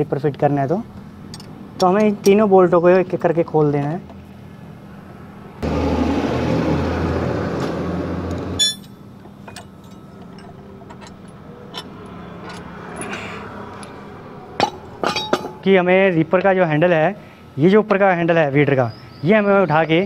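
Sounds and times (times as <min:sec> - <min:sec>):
spanner clinking on steel bolts: 0:01.2 - 0:02.5, 0:08.6 - 0:16.2
loud steady rumble: 0:04.5 - 0:16.6.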